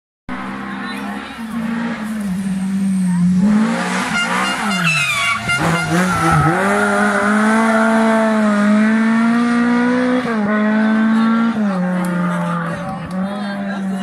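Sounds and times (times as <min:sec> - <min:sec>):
car engine revving: 0:00.3 - 0:14.0
rally car passing: 0:00.3 - 0:14.0.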